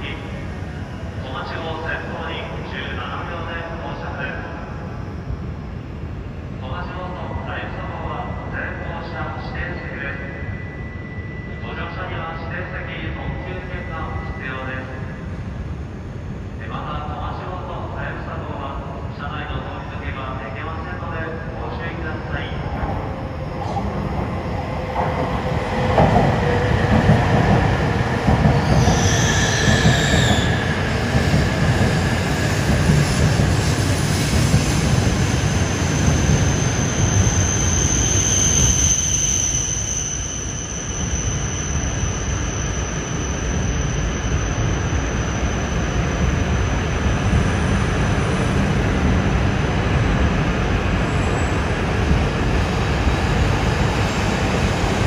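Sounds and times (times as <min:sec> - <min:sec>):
train wheels rumbling: 0:22.2 - 0:38.1
high squealing tones: 0:28.6 - 0:30.8, 0:35.2 - 0:46.4.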